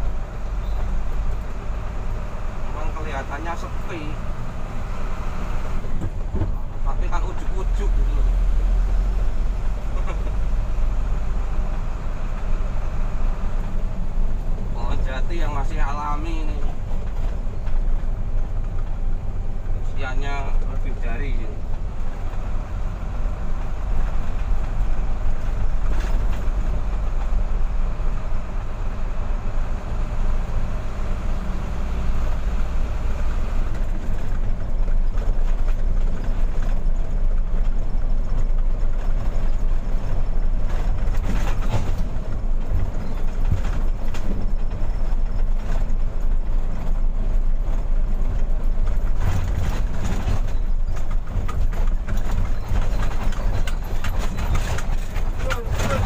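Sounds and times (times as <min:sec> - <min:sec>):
truck diesel engine drone: 0:00.0 - 0:56.0
knocks and rattles: 0:33.7 - 0:56.0.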